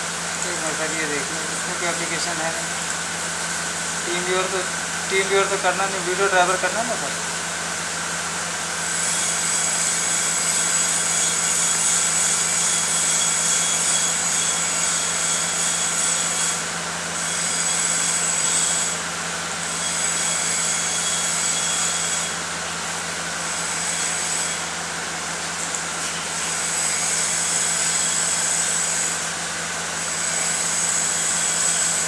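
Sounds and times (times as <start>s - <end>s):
low machine hum: 0.0s - 9.1s
high machine whine: 0.0s - 32.0s.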